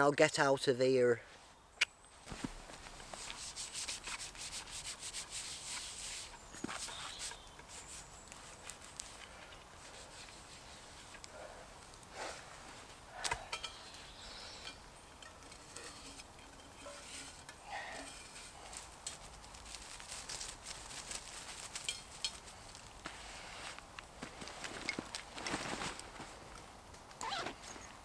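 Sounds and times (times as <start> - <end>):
leaf litter rustling: 2.2 - 11.2, 15.4 - 26.6.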